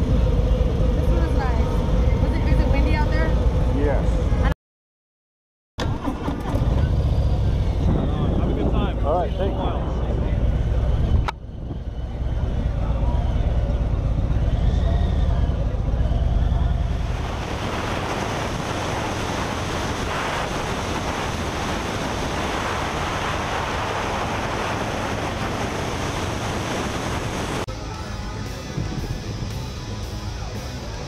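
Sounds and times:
motorcycle engine running: 6.4s - 31.0s
wind noise over microphone: 6.5s - 12.1s, 16.9s - 27.7s
music: 27.7s - 31.0s.

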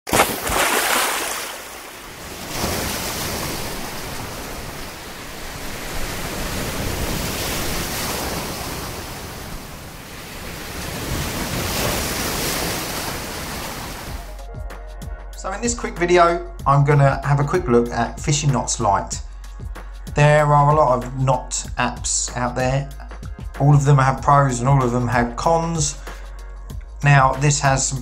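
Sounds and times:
sea waves washing in: 0.1s - 14.3s
wind: 0.1s - 14.3s.

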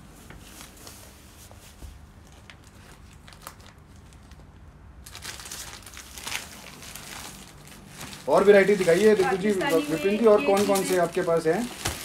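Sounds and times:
plastic packaging crinkling: 2.2s - 12.0s.

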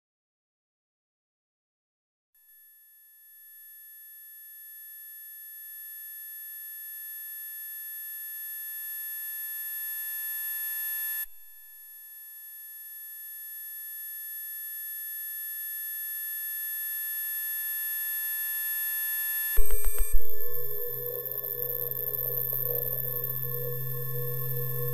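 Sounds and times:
electronic tone with overtones: 19.6s - 24.9s.

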